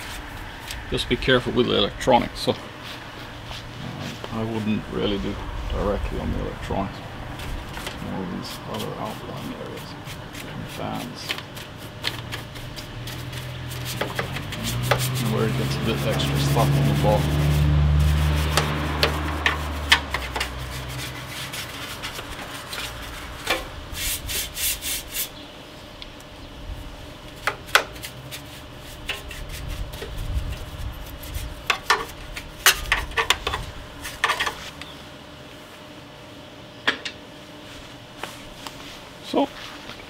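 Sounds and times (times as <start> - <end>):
brush scrubbing metal and plastic: 0.0 - 0.8, 7.3 - 25.4, 27.4 - 34.8.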